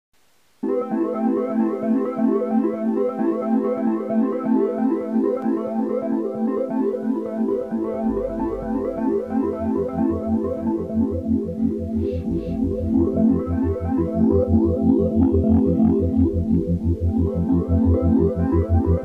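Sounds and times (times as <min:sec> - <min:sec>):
electronic keyboard tune: 0:00.6 - 0:19.0
low bass line: 0:07.5 - 0:19.0.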